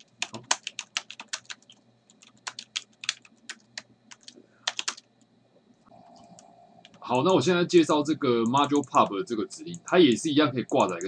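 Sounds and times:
typing on computer keyboard: 0.0s - 5.1s, 8.5s - 9.1s, 9.7s - 11.0s.

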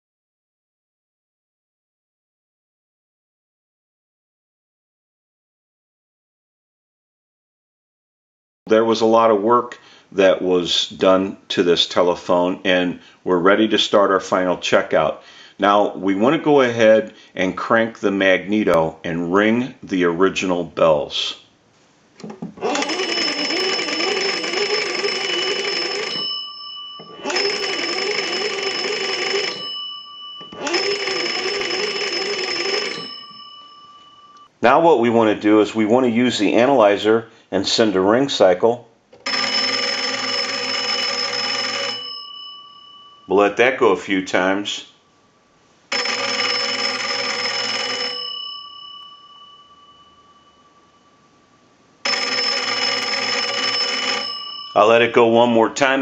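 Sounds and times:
telephone bells ringing: 22.6s - 34.5s, 39.2s - 43.8s, 45.9s - 51.3s, 52.0s - 56.0s.

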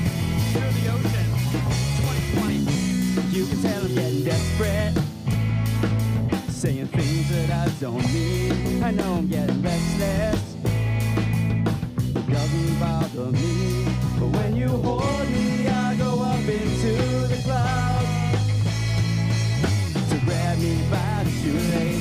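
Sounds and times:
drum kit: 0.0s - 22.0s
electric guitars: 0.0s - 22.0s
person singing lead: 12.3s - 18.4s, 20.1s - 22.0s.

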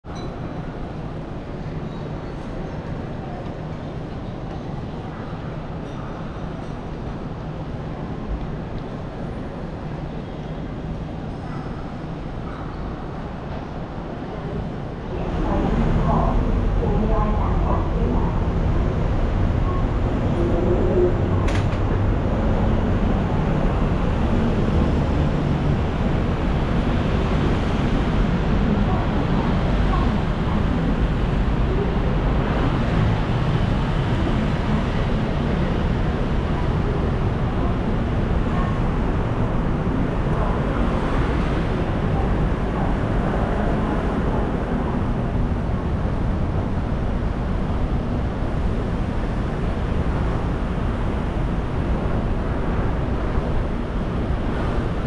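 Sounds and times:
road traffic rumble: 7.8s - 55.0s
people talking: 14.1s - 22.0s, 26.9s - 33.1s, 34.0s - 45.2s.

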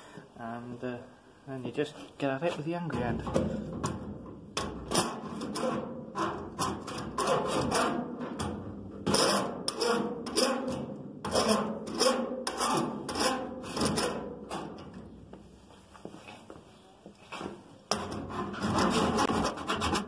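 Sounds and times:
file rasping on metal: 4.9s - 8.1s, 9.1s - 14.3s, 17.9s - 20.0s.

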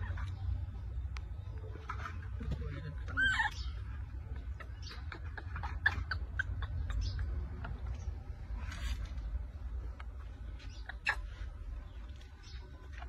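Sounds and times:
steady low rumble: 0.0s - 13.0s
high animal squeaks and chirps: 2.8s - 9.1s, 10.0s - 13.0s.

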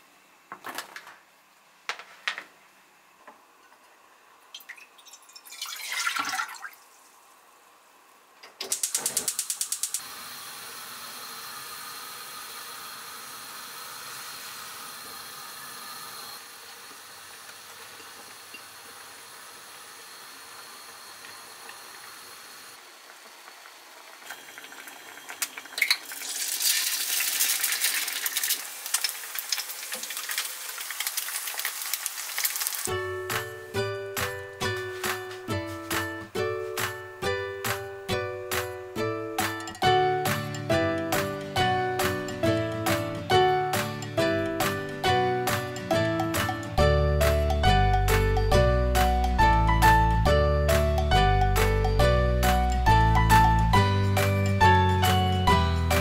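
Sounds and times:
broth pouring into saucepan: 4.6s - 7.1s, 10.2s - 32.9s
gas stove igniter clicking: 8.4s - 10.0s
burner flame hissing: 9.4s - 33.6s
eggs sizzling in oil: 10.0s - 34.3s.

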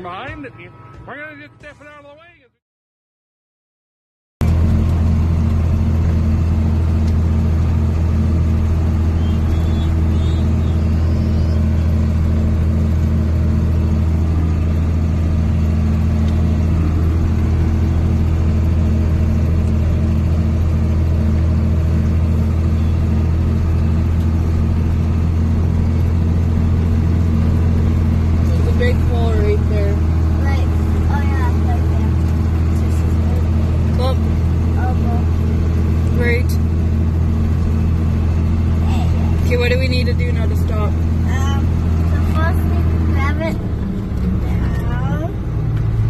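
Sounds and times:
tractor diesel engine drone: 0.0s - 2.4s, 4.4s - 46.0s.

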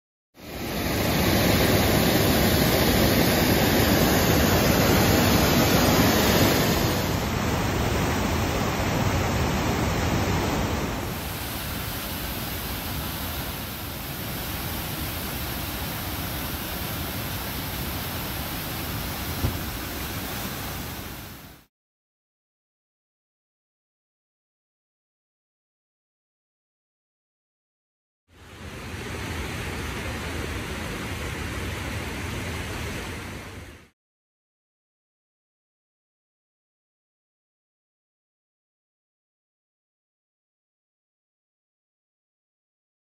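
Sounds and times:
floodwater rushing: 0.4s - 21.7s.

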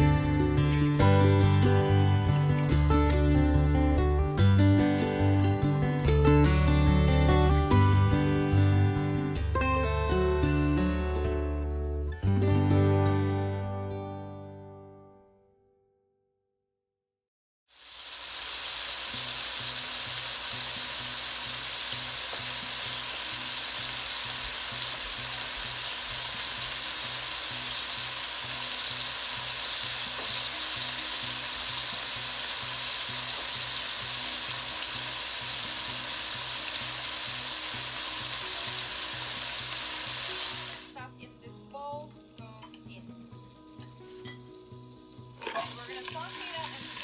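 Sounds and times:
food frying in hot oil: 17.7s - 40.9s, 45.4s - 47.0s.

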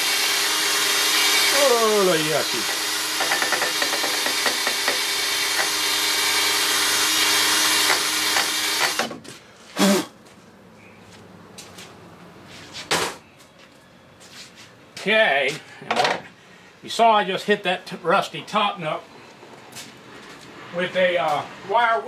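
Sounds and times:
drill wire wheel scouring rust: 0.0s - 9.1s.

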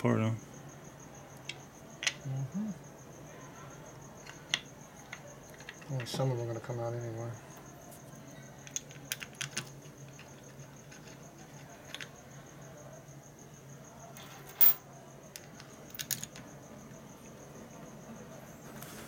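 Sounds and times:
metal parts set on metal table: 14.2s - 14.8s
small metallic clicks and clinks: 14.2s - 16.5s.

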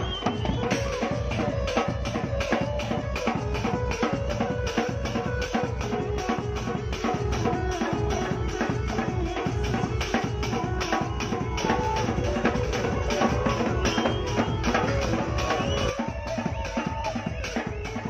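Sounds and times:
dance music with fast drum beat: 0.0s - 18.0s.

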